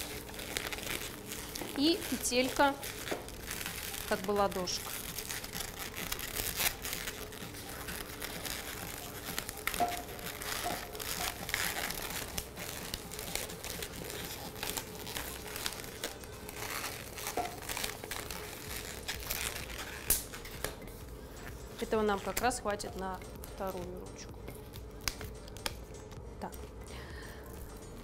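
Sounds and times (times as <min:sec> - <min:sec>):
balloons rubbing and squeaking: 0:00.0 - 0:20.6, 0:21.7 - 0:22.6.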